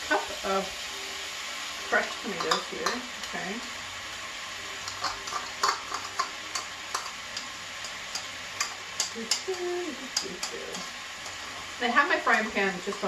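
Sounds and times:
frying pan sizzling: 0.0 - 13.0
spoon scraping and tapping a cup: 4.9 - 9.4.

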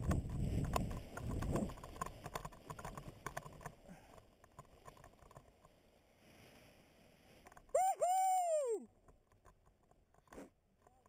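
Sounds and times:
wind noise on microphone: 0.0 - 3.0.

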